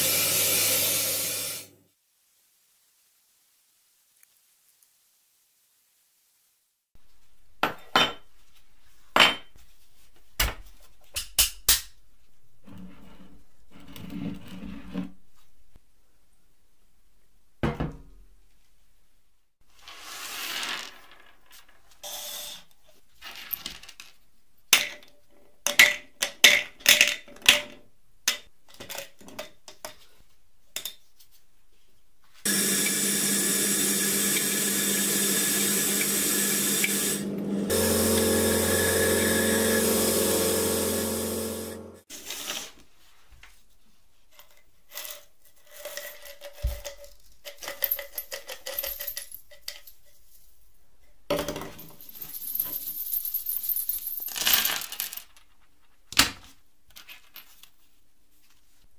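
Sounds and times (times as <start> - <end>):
sandblasting gun hissing: 32.5 - 42.0.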